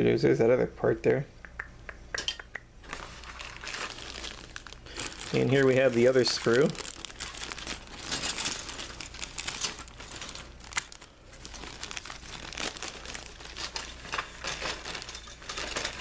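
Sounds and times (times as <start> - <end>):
plastic bag crinkling: 2.8 - 16.0.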